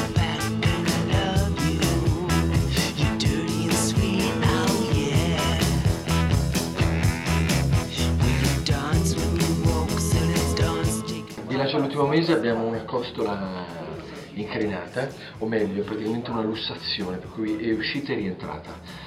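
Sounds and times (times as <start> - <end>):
rock music with guitar: 0.0 - 11.5
steady drum beat: 0.0 - 11.6, 12.8 - 18.4.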